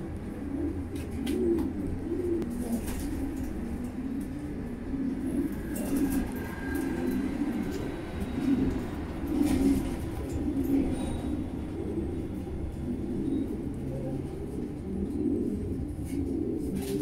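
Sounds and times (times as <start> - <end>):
pigeon cooing: 0.0 - 17.0.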